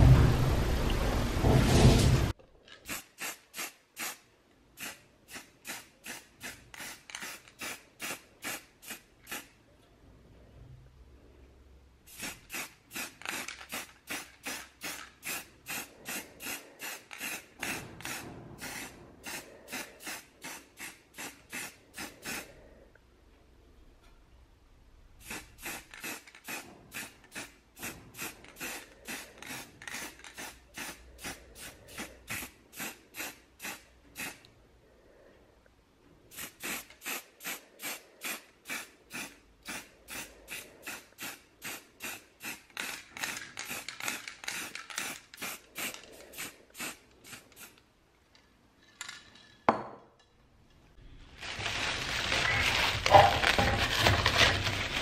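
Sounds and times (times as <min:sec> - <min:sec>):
spray can hissing bursts: 0:02.9 - 0:09.5, 0:12.1 - 0:22.5, 0:25.2 - 0:34.4, 0:36.3 - 0:47.8
plastic film crinkling: 0:51.2 - 0:55.0.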